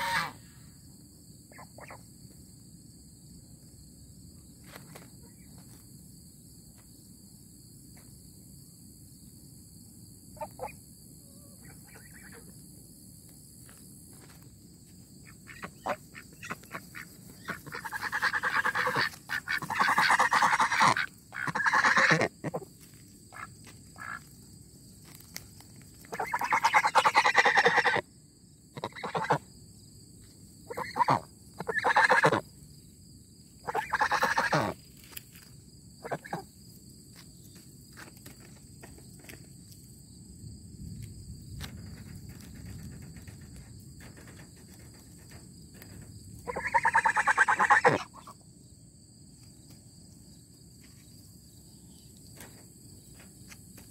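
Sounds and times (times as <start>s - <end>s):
ducks quacking: 0.0s - 0.4s, 15.4s - 22.7s, 26.1s - 28.0s, 28.8s - 29.4s, 30.7s - 32.4s, 33.6s - 34.8s, 46.4s - 48.4s
geese honking: 0.0s - 0.4s, 15.5s - 22.6s, 26.1s - 28.0s, 28.8s - 29.4s, 30.7s - 32.4s, 33.6s - 34.8s, 46.4s - 48.4s.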